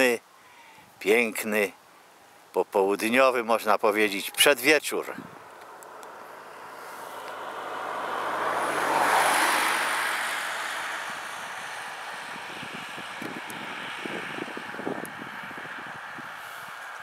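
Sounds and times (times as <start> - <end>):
car passing by: 5.4 - 17.0.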